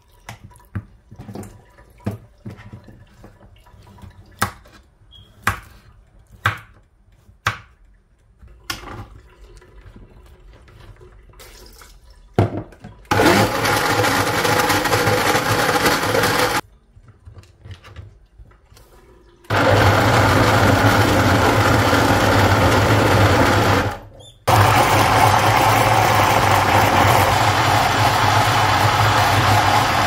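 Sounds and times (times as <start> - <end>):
blender grinding: 13.1 - 16.6, 19.5 - 30.0.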